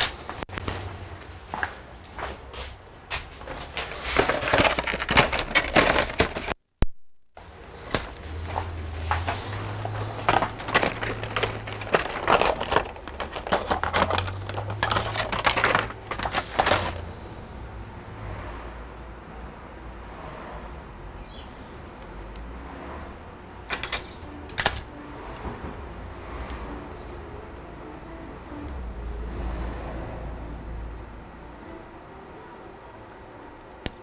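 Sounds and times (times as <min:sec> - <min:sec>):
plastic wrapping crinkling: 0:09.2 - 0:17.0.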